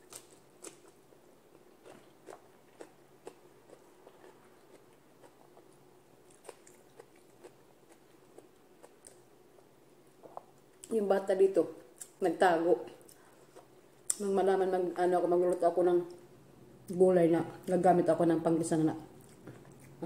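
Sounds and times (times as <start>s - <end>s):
person chewing food: 0.0s - 10.9s, 19.2s - 20.0s.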